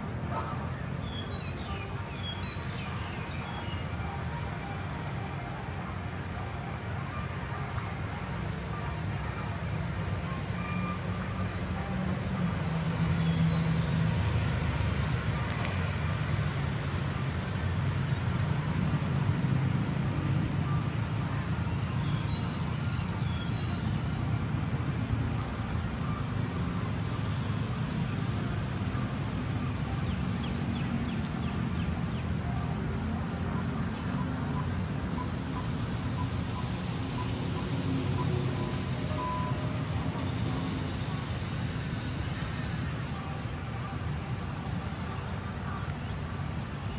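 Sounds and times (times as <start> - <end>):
road traffic rumble: 0.0 - 46.9.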